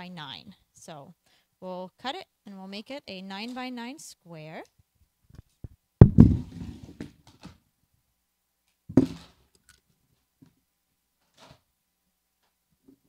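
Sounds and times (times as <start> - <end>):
microphone rubbing and knocking: 5.3 - 7.2
microphone thump: 6.0 - 7.0.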